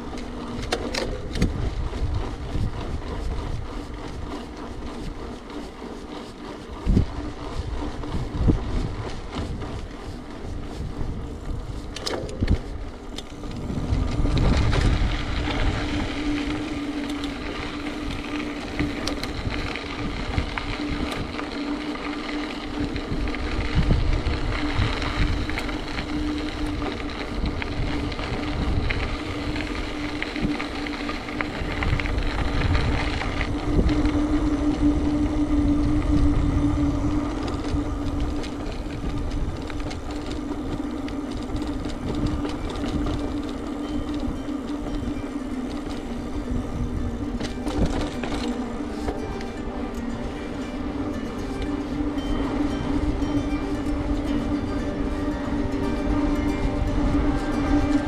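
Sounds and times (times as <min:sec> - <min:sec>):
steady hum: 0:00.0 - 0:58.0
wind rushing over microphone: 0:00.0 - 0:58.0.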